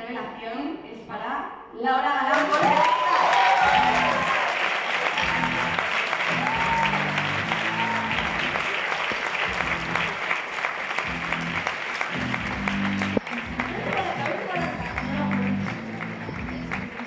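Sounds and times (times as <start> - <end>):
audience applauding: 2.3 - 17.0
background music: 3.5 - 17.0.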